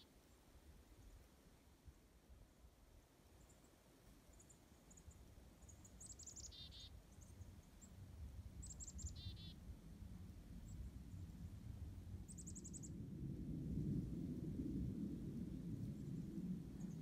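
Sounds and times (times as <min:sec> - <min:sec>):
faint low wind rumble: 0:00.0 - 0:17.0
chickadee calling: 0:06.0 - 0:07.0, 0:08.6 - 0:09.6.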